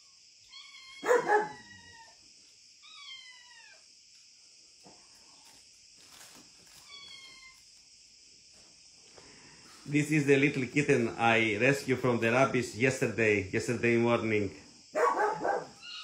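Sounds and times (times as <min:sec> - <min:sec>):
steady high hiss: 0:00.0 - 0:16.0
dog barking: 0:01.0 - 0:01.7, 0:15.0 - 0:15.8.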